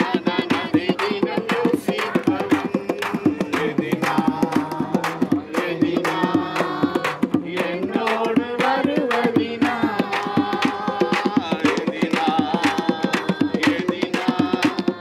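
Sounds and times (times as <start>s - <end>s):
frame drum struck by hand: 0.0s - 15.0s
group singing: 0.0s - 15.0s
hand clapping: 0.0s - 15.0s.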